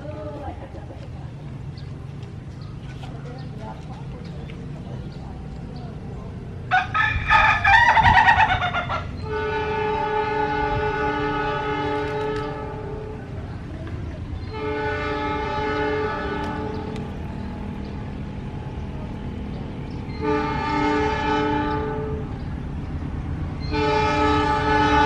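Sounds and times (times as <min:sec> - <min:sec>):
locomotive horn blasts: 0:09.2 - 0:13.4, 0:14.4 - 0:17.1, 0:20.1 - 0:22.4, 0:23.6 - 0:25.0.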